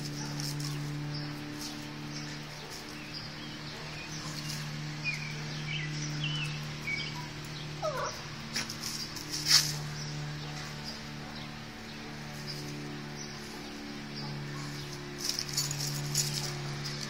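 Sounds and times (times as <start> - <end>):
steady low hum: 0.0 - 17.0
small dog whining: 7.8 - 8.2.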